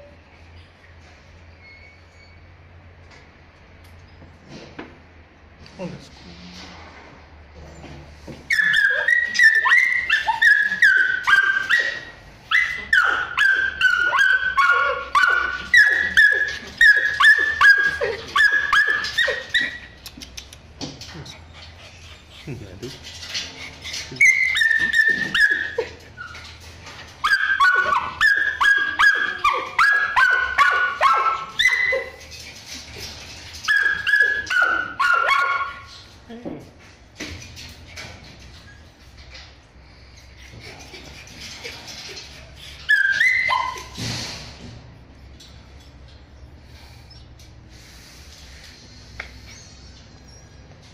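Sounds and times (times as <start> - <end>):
dogs whining and yelping: 7.8 - 20.1, 21.0 - 36.2, 37.6 - 44.0, 48.8 - 50.9.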